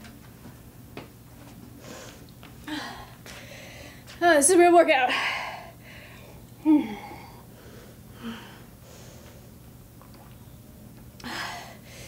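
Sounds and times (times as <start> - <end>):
woman breathing hard: 1.8 - 4.1, 5.1 - 9.6, 11.2 - 12.0
sipping water: 9.9 - 11.4.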